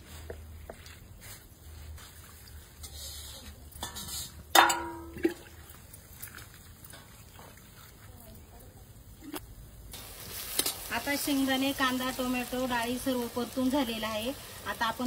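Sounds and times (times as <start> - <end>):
steel pot knocked ringing: 4.5 - 5.3.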